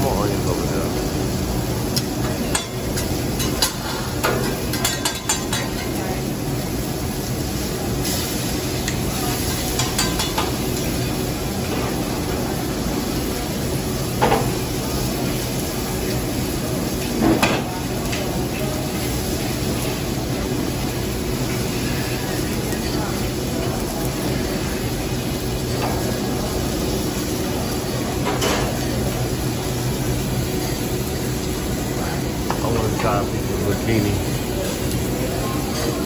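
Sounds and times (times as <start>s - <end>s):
food sizzling on a griddle: 0.0s - 36.0s.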